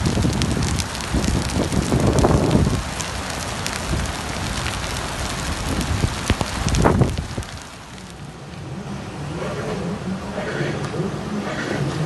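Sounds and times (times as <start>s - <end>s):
wind buffeting microphone: 0.0s - 8.2s
heavy rain on paving: 0.0s - 11.6s.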